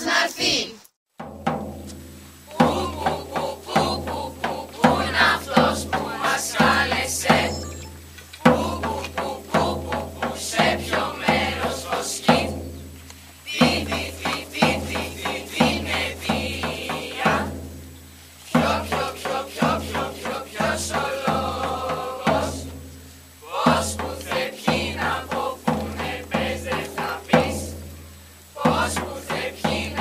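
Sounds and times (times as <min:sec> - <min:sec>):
group chanted singing: 0:00.0 - 0:00.8, 0:02.5 - 0:07.6, 0:08.4 - 0:12.8, 0:13.4 - 0:17.8, 0:18.4 - 0:22.8, 0:23.4 - 0:30.0
music with drum beat: 0:01.1 - 0:30.0.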